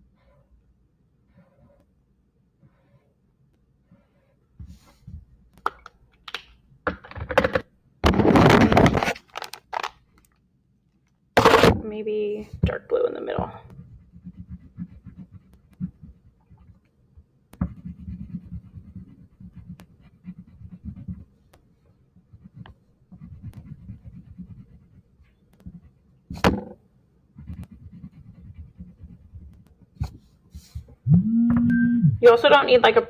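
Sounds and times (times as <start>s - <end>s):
crayon rubbing on paper: 13.6s - 16.8s, 17.6s - 21.4s, 22.2s - 26.5s, 27.4s - 30.9s.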